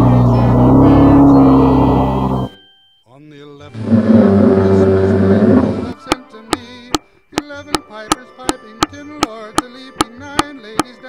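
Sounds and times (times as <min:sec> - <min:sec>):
wavering pitched melody: 0:00.0 - 0:02.8, 0:03.7 - 0:06.0
clicking beat: 0:05.5 - 0:11.0.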